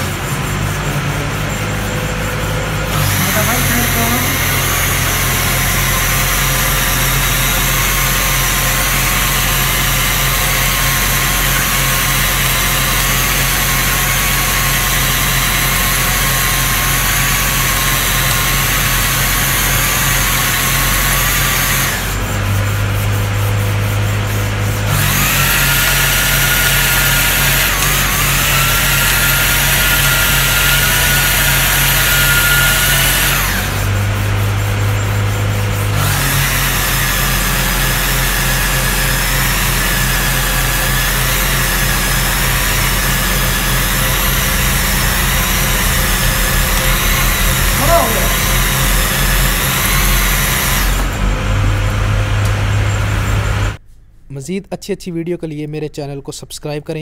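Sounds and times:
boring machine motor whine: 0.0 - 22.9, 24.3 - 53.8
low hum: 42.9 - 53.8.

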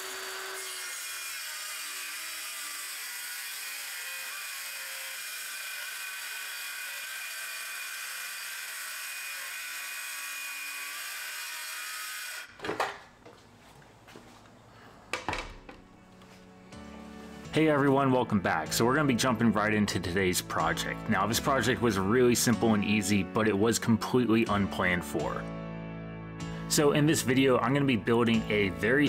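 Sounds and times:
circular saw cutting plywood: 0.0 - 12.5.

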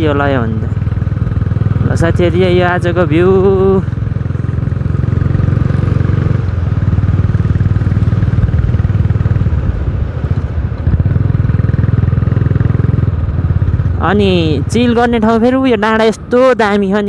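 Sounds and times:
motorcycle engine running: 0.0 - 17.0.

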